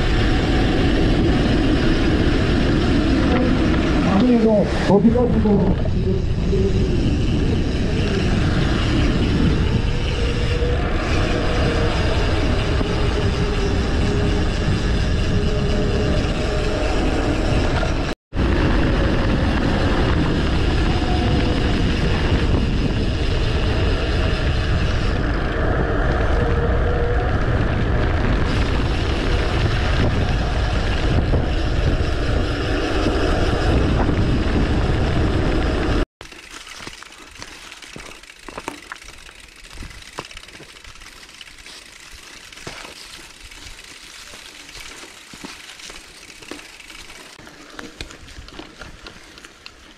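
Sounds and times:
wind rushing over microphone: 0:00.0 - 0:36.1
bike tyre noise on road: 0:00.0 - 0:49.9
bike tyres crunching on dirt: 0:00.0 - 0:49.9.

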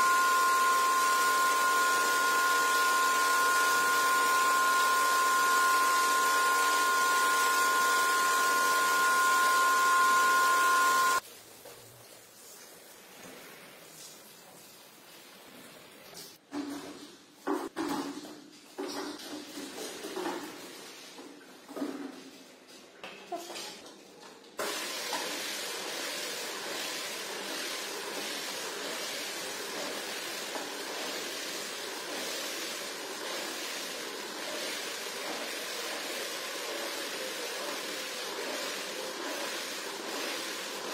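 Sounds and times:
vacuum cleaner running: 0:00.0 - 0:11.2, 0:24.6 - 0:40.9
floor scrubber brush scrubbing rug: 0:00.0 - 0:15.8, 0:24.6 - 0:40.9.

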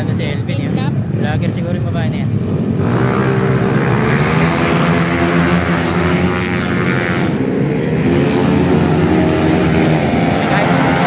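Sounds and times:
racing scooter engines buzzing: 0:00.0 - 0:11.0.

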